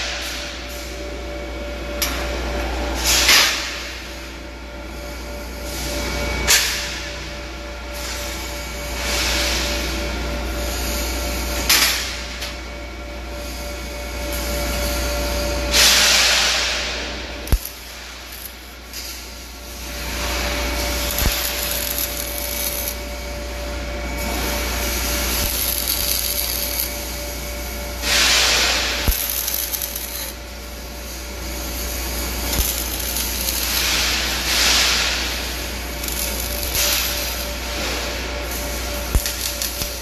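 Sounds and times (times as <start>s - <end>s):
welding arc hissing and crackling: 0.0s - 7.3s, 7.9s - 40.0s
steady hum: 0.0s - 40.0s.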